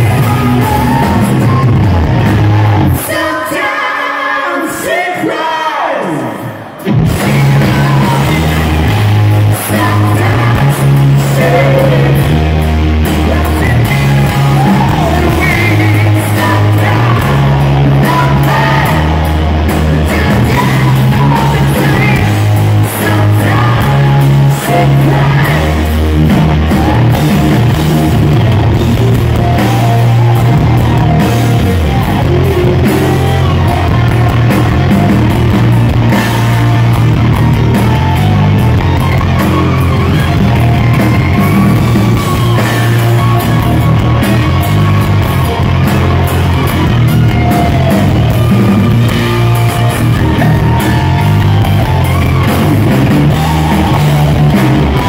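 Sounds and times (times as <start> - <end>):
live rock band playing: 0.0 - 3.9, 6.1 - 55.0
lead singer's vocals: 0.0 - 37.0.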